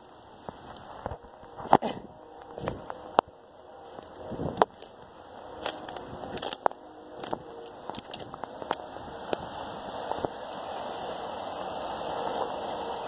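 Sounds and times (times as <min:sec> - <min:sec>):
footsteps crunching through snow and leaves: 0:00.0 - 0:13.0
rushing water: 0:05.2 - 0:13.0
sticks snapping: 0:05.6 - 0:09.4.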